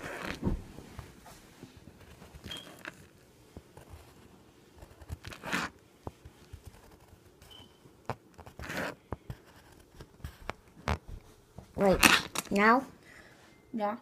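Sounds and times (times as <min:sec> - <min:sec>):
pencil scratching on paper: 0:03.8 - 0:07.6, 0:08.4 - 0:10.5.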